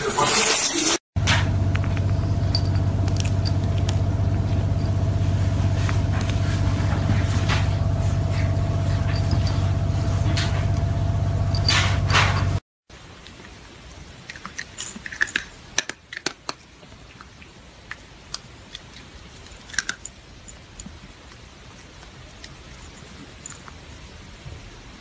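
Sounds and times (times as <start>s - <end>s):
steady low hum: 1.2s - 12.6s.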